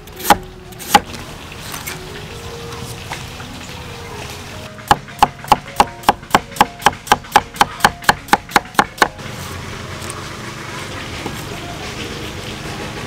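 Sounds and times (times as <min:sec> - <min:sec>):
cleaver chopping on wooden board: 0:00.2 - 0:01.1, 0:04.9 - 0:09.2.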